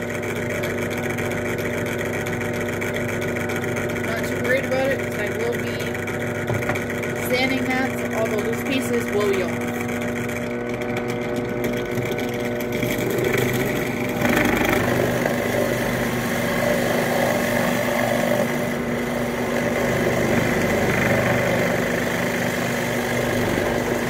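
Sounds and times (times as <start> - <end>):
drill press motor hum: 0.0 - 24.0
hole saw cutting wood: 12.0 - 24.0.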